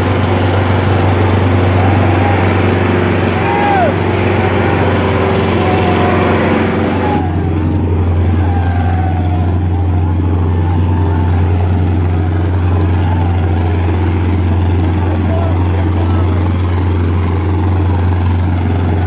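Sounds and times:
tractor engine labouring: 0:00.0 - 0:19.0.

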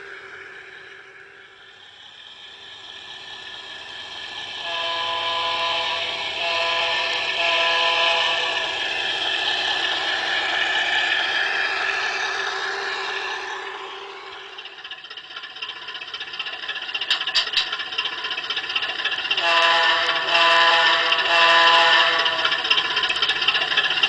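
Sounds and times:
model train rattling on track: 0:00.0 - 0:24.0
train horn chord blast: 0:04.6 - 0:08.6, 0:19.4 - 0:22.5.

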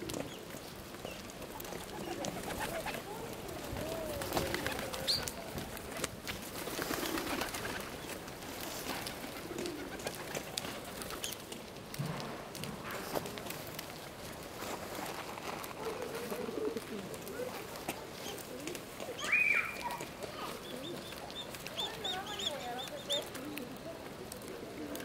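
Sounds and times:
pigeons cooing: 0:00.0 - 0:06.0, 0:06.6 - 0:11.5, 0:15.8 - 0:25.0
beaks pecking on ice: 0:17.5 - 0:25.0.

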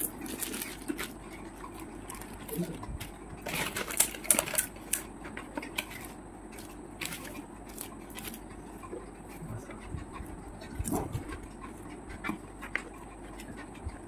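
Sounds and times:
crisp shells crackling: 0:00.0 - 0:05.1
crunching while eating: 0:00.0 - 0:14.0.

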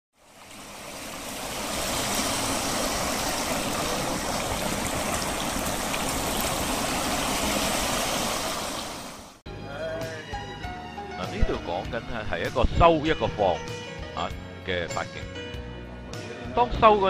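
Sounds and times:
fountain water splashing into pool: 0:00.1 - 0:09.4.

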